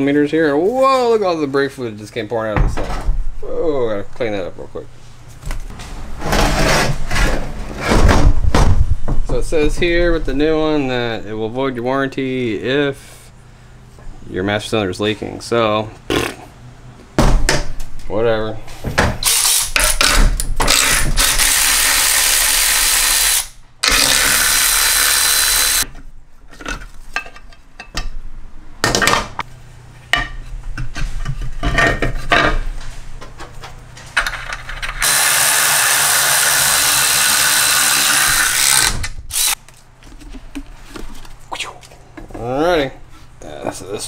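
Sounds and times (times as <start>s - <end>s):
cordless electric ratchet running: 20.7s - 25.8s, 35.0s - 39.6s.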